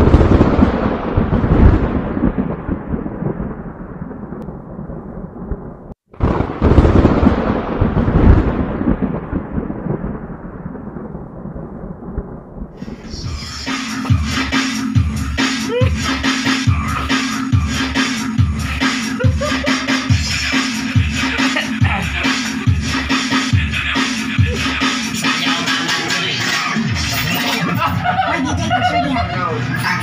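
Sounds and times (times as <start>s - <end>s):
thunder rolling: 0.0s - 29.4s
music: 13.2s - 30.0s.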